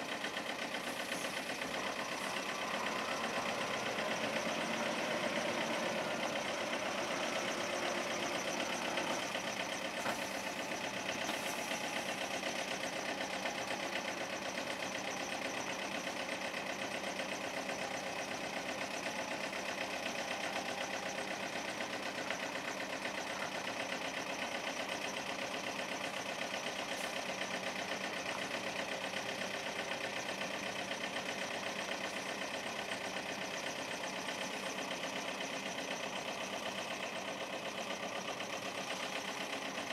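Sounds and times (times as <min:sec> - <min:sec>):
diesel engine idling: 0:00.0 - 0:39.9.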